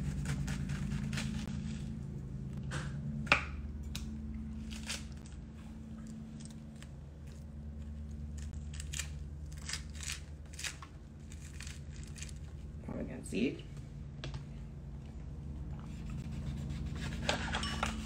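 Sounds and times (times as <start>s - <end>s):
low hum: 0.0s - 18.0s
fruit crunching and squishing: 3.8s - 12.8s.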